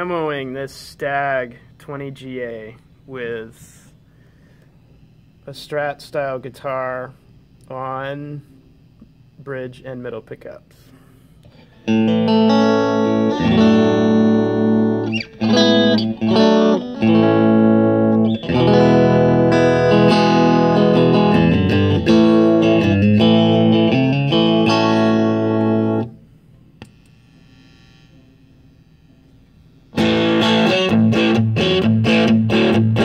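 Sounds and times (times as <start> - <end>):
electric guitar chords: 11.4 - 28.0, 29.7 - 33.0.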